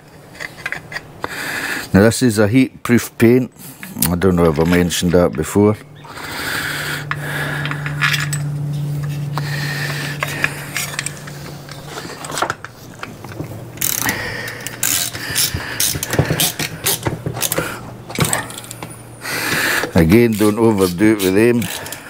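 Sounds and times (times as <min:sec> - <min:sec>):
steady low hum: 0:00.0 - 0:22.0
metal scraping: 0:03.7 - 0:22.0
ratchet clicks: 0:13.8 - 0:17.6, 0:19.8 - 0:22.0.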